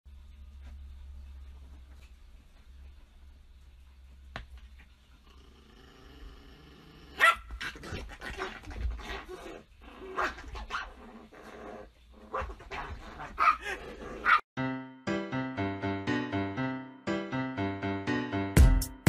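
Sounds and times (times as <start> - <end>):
small dog barking: 7.2 - 7.7, 13.4 - 14.4
piano music: 14.6 - 19.0.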